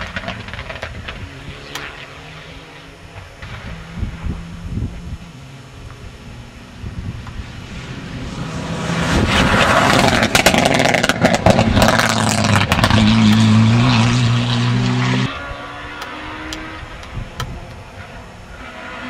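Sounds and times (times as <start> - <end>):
rally car passing at speed: 6.0 - 17.0, 17.6 - 19.0.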